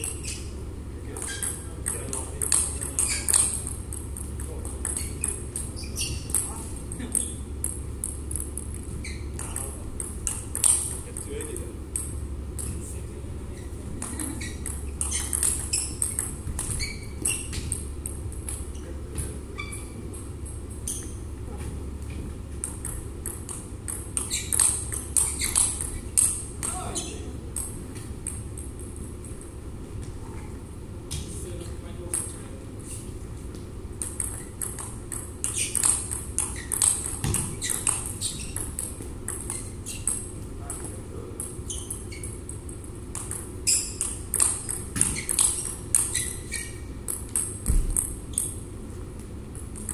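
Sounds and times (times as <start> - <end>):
shoes squeaking on rubber floor: 0.0 - 7.6, 8.5 - 11.0, 13.4 - 22.4, 23.9 - 27.3, 29.9 - 31.4, 32.8 - 49.0
low hum of hall: 0.0 - 49.9
table tennis ball clicking: 1.2 - 12.8, 14.0 - 18.6, 22.6 - 26.8, 34.0 - 40.3, 41.4 - 48.6.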